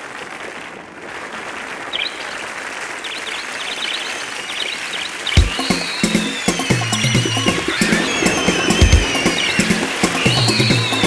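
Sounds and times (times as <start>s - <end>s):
crowd applauding: 0.0s - 11.0s
short high cries: 5.4s - 11.0s.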